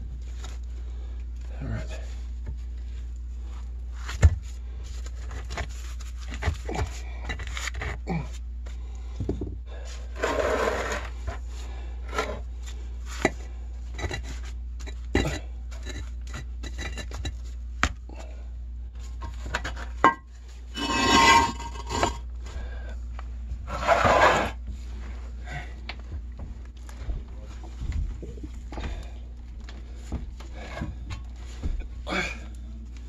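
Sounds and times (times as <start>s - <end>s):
concrete blocks scraping: 10.0s - 12.4s, 13.1s - 17.4s, 19.4s - 22.3s, 23.7s - 24.6s.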